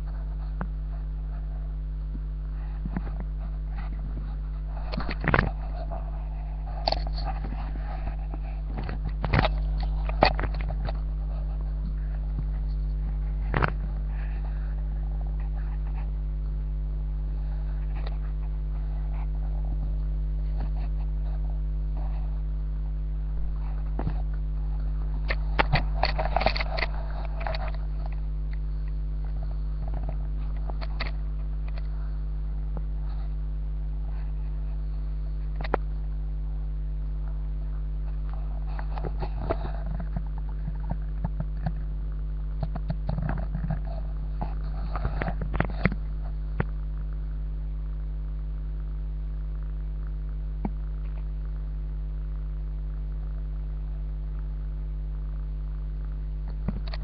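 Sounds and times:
low electrical hum: 0.0 - 57.0
clicks: 23.5 - 31.9.

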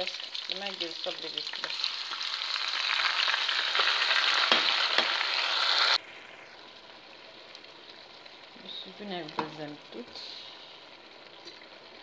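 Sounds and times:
marinade sizzling in a hot pot: 0.0 - 12.0
faint hiss: 4.7 - 12.0.

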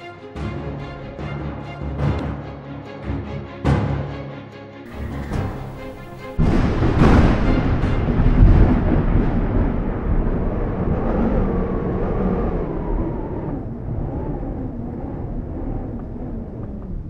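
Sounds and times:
loud boom: 4.9 - 11.7
fire roaring: 4.9 - 17.0.

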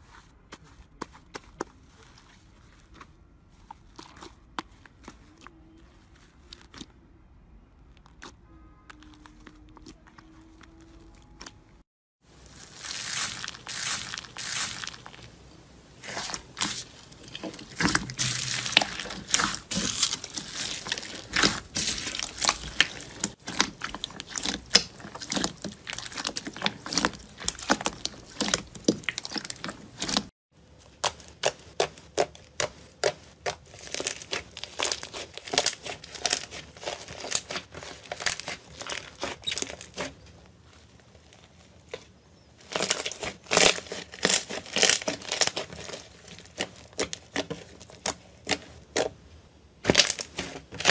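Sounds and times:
slime crackling and popping: 16.0 - 30.3, 30.9 - 40.1, 42.6 - 49.1, 49.8 - 50.9.

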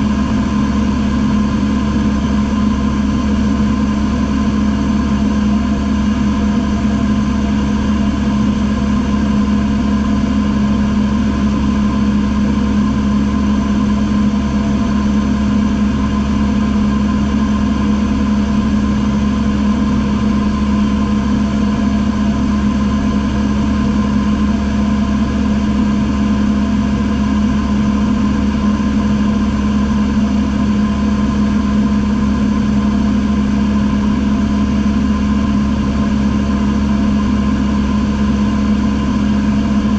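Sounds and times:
airplane engine drone in cabin: 0.0 - 39.9.

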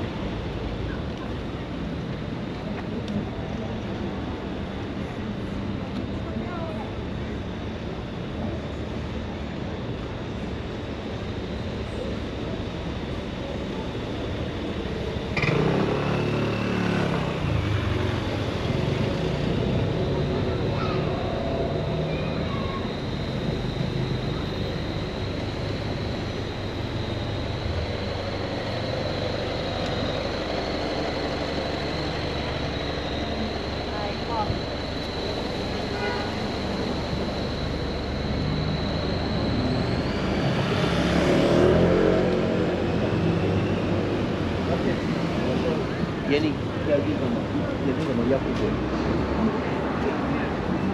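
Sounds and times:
city street traffic: 0.0 - 50.9
motor scooter engine pulling away: 15.4 - 22.2
motor scooter passing: 38.6 - 46.0.

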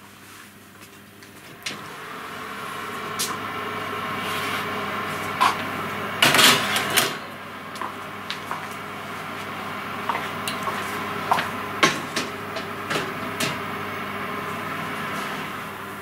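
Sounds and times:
oven door opening: 5.4 - 7.3, 11.8 - 13.8.

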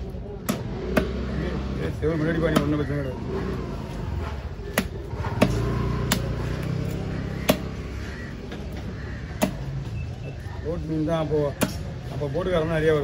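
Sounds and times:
knife chopping on a block: 0.4 - 1.2, 4.7 - 6.5, 7.4 - 7.7, 11.6 - 11.8.

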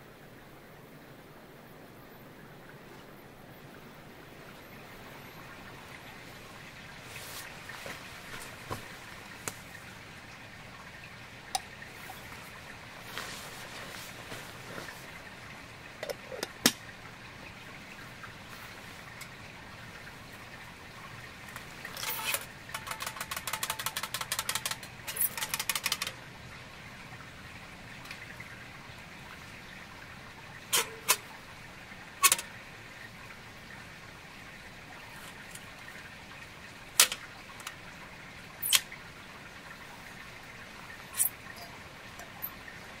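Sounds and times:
rapid rattling clicks: 22.0 - 26.2
sharp metallic clicks: 22.0 - 26.2.

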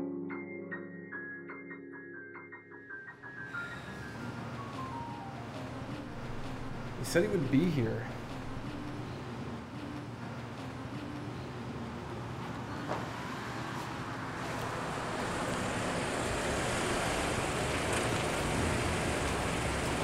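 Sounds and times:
car driving up: 12.9 - 20.0.

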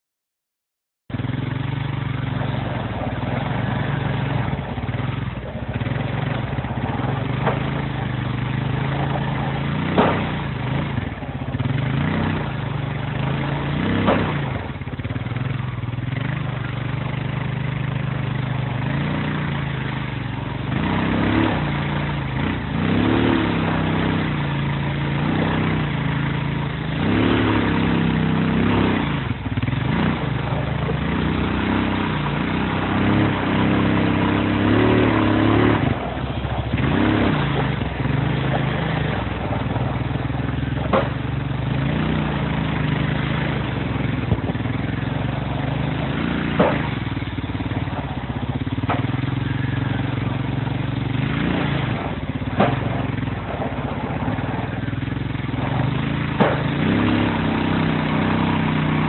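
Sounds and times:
diesel engine running: 1.1 - 59.0
sharp knocks: 9.7 - 10.8, 13.8 - 14.6, 40.6 - 41.2, 46.2 - 47.1, 55.8 - 57.1.

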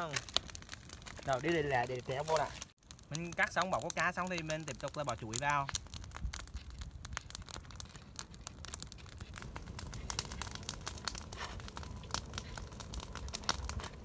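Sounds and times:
crinkly rustling: 6.2 - 14.0.

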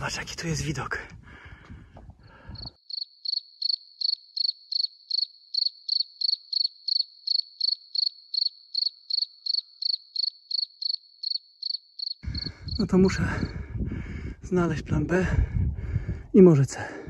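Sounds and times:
cricket chirping: 2.4 - 13.6.

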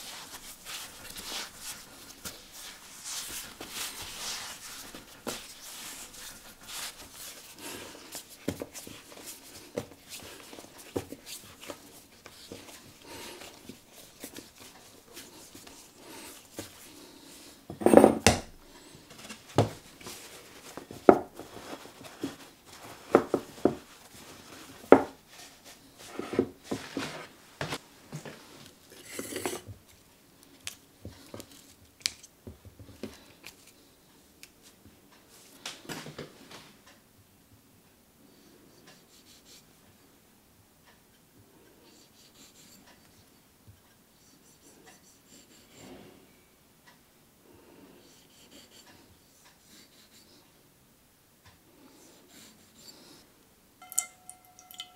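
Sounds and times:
hands kneading dough: 0.0 - 17.7, 18.8 - 28.8.

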